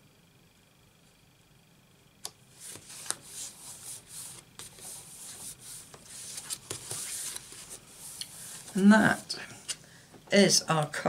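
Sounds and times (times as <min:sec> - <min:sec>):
paper rustling and rubbing: 0:02.5 - 0:09.3.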